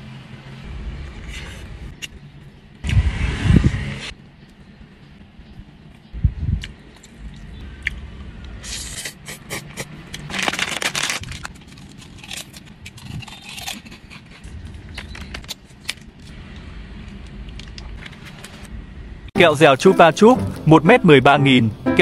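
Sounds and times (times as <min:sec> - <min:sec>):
plastic packaging crinkling: 0:10.2 - 0:14.3
packaging tearing rustles: 0:10.2 - 0:14.4.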